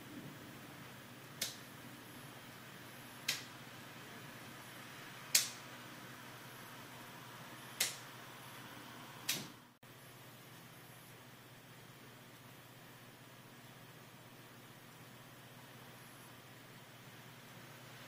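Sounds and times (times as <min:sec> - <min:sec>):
low hum: 0:00.0 - 0:18.0
steady hiss: 0:00.0 - 0:18.0
sharp short clicks: 0:05.3 - 0:05.6, 0:07.8 - 0:08.0.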